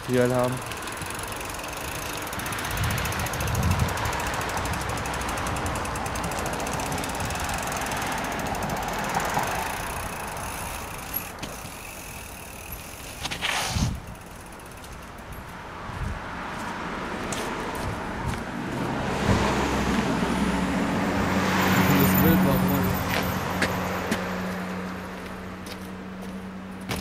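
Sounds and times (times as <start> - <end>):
mountain bike rattling: 0.0 - 15.7, 21.5 - 23.6.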